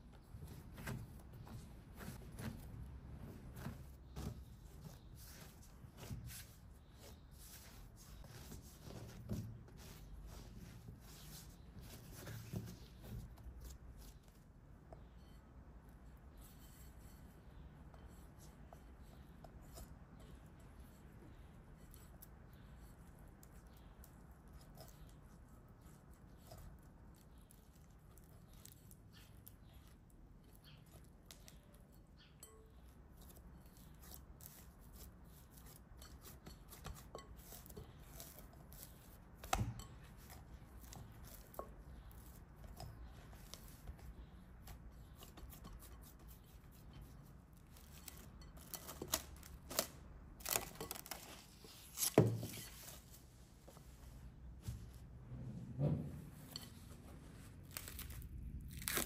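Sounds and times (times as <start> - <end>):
hands kneading dough: 0.0 - 59.0
cling film crinkling: 57.6 - 59.0.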